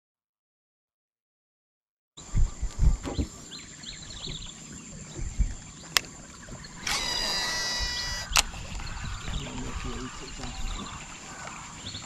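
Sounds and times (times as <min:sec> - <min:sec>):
birds chirping: 0:02.2 - 0:12.0
fishing reel spool whirring: 0:06.8 - 0:09.0.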